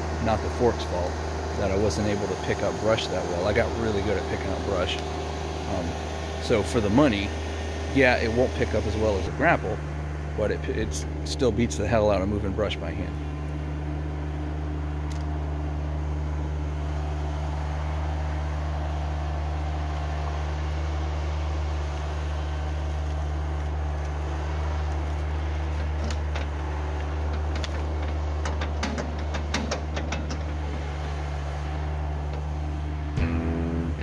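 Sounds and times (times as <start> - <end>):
tractor engine running: 0.0 - 34.0
brush cracking and snapping: 22.9 - 28.7.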